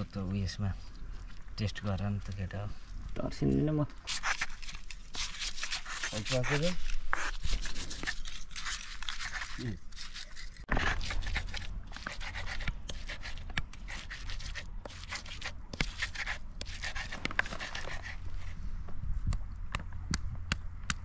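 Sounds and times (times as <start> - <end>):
stone grinding on stone: 4.1 - 18.2.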